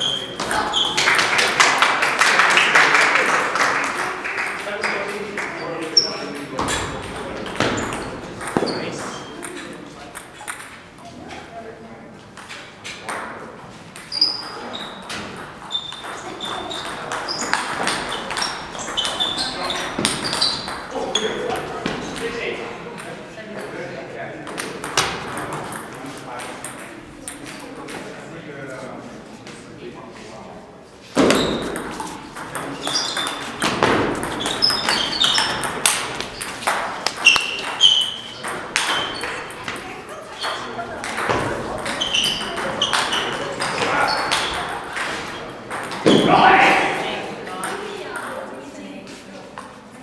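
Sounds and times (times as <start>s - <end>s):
table tennis balls knocking: 6.0s - 10.9s, 12.4s - 22.4s, 24.5s - 28.0s, 31.2s - 46.4s
table tennis ball clicks: 31.7s - 39.8s.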